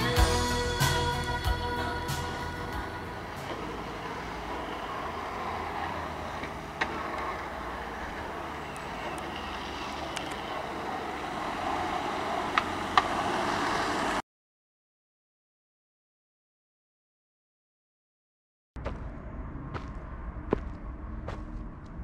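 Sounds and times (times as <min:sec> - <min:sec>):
street noise rolling rush: 0:00.0 - 0:14.2, 0:18.8 - 0:22.0.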